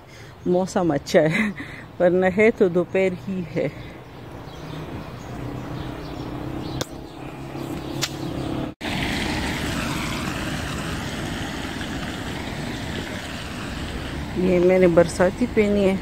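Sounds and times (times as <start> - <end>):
vehicle engine hum: 1.5 - 16.0
tyres hissing on wet road: 8.8 - 16.0.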